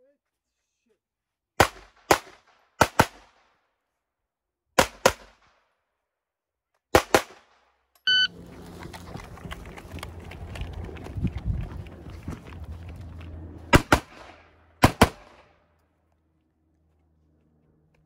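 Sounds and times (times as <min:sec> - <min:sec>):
rifle shots: 0:01.6 - 0:03.4, 0:04.8 - 0:05.5, 0:13.7 - 0:15.6
brief high tone: 0:08.1 - 0:08.4
running footsteps: 0:08.2 - 0:13.8.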